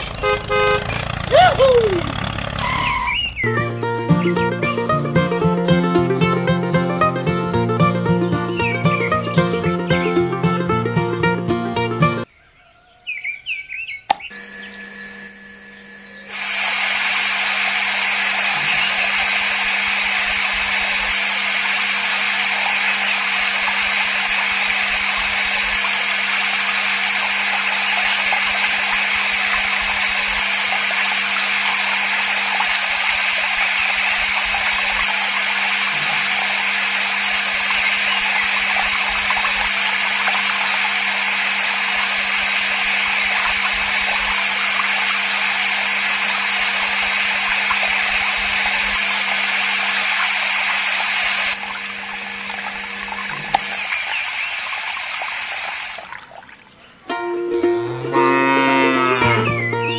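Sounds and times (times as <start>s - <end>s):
electric water pump humming: 0.0s - 12.3s, 14.1s - 59.9s
water spraying from nozzle: 16.2s - 56.7s.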